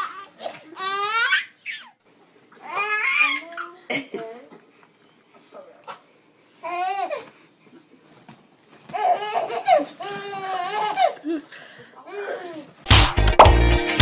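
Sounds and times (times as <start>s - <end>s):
loud music: 12.9s - 14.0s.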